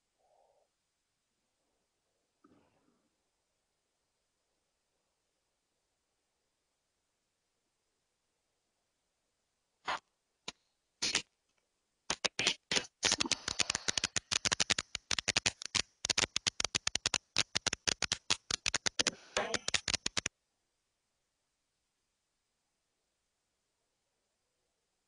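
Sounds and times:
sharp clicks and taps: 12.1 - 20.3.

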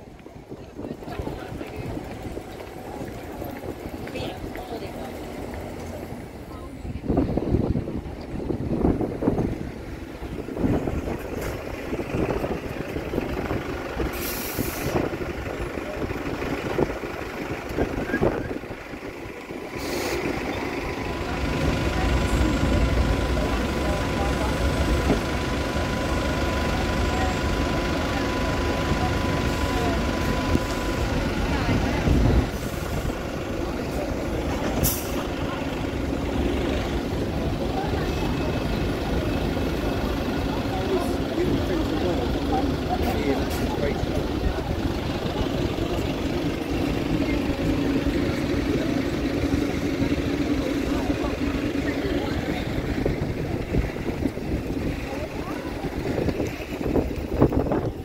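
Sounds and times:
bus engine rumbling: 0.0 - 58.0
people talking: 0.0 - 58.0
street noise: 0.0 - 58.0
traffic rumble: 0.0 - 58.0
air brake hisses: 14.1 - 15.0, 19.7 - 20.4.

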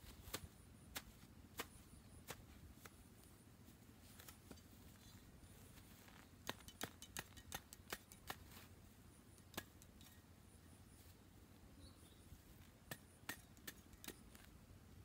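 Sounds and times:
soil clod snapping and crackling: 6.2 - 8.5.

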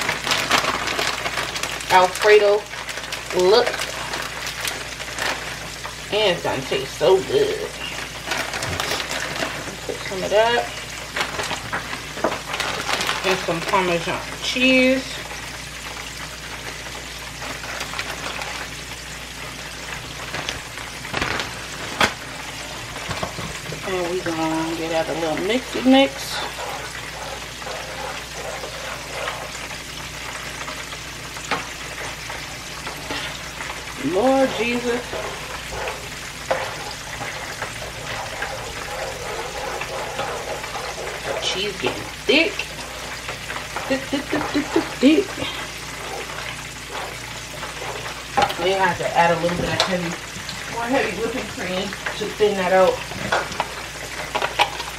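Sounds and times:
chicken wings sizzling in oil: 0.0 - 54.9
spoon stirring thick sauce: 35.0 - 48.6.

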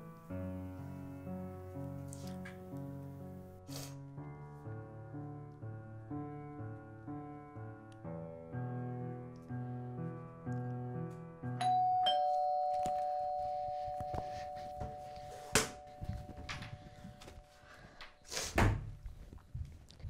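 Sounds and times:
soft piano music: 0.0 - 18.0
two-note doorbell chime: 11.6 - 17.9.

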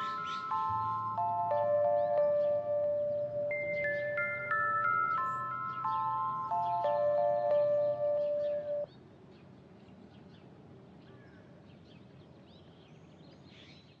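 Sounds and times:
descending held musical notes: 0.0 - 8.9
faint birdsong chirps: 0.0 - 14.0.

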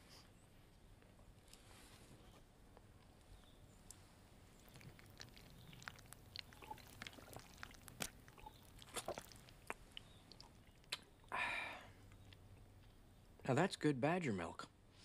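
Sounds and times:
person swallowing: 4.7 - 11.2.

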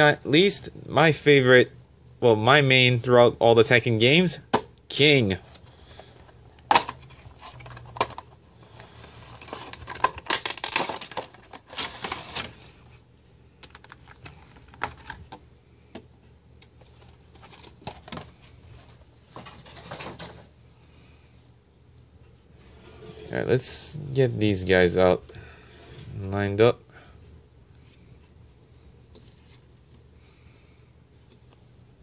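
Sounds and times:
plastic packaging crinkling: 6.7 - 12.8.

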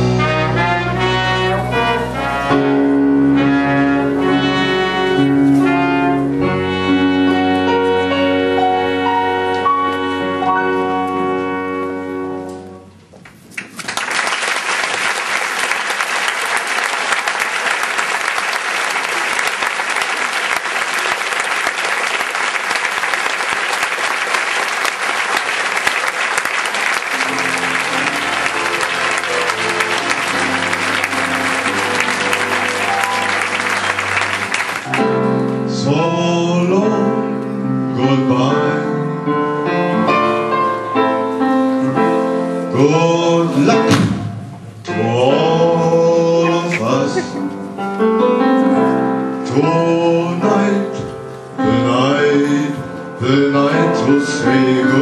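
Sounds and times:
brass band held chord: 0.0 - 12.7, 26.6 - 35.3
audience applause: 13.6 - 35.3.

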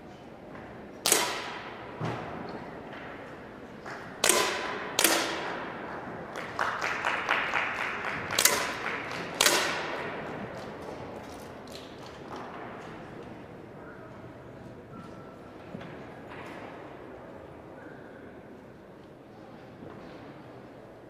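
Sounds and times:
air pistol shots echoing: 1.0 - 2.0, 4.2 - 6.0, 8.3 - 10.2.

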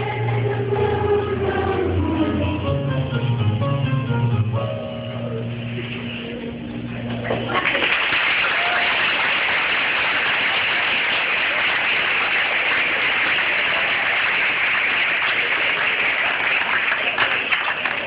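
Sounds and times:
audience applauding: 7.2 - 18.0.

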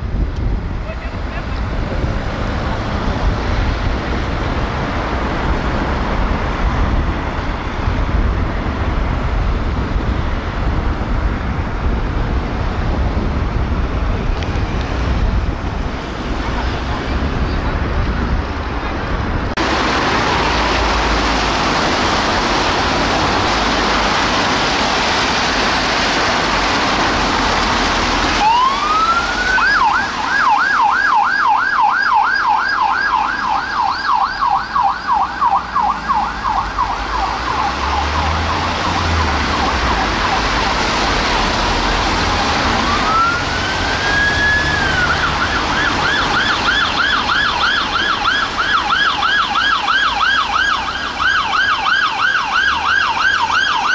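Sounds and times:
loud steady rushing noise: 0.0 - 53.9
police siren yelping: 28.3 - 53.9.

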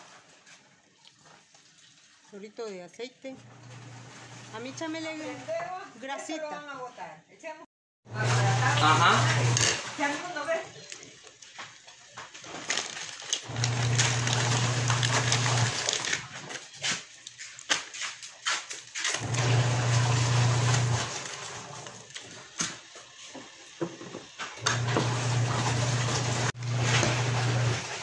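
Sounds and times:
electric motor humming: 8.1 - 9.8.

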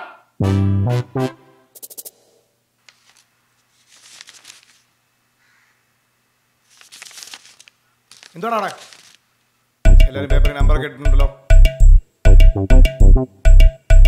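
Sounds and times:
paper rustling: 2.8 - 5.0, 6.6 - 9.5.

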